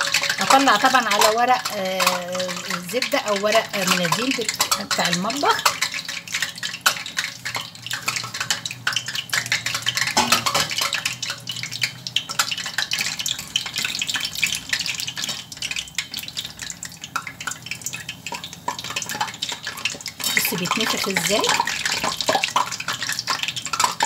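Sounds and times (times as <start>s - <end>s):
skimmer and tongs clinking on pan: 0.0s - 14.3s, 17.2s - 24.0s
dough crackling in hot oil: 0.0s - 24.0s.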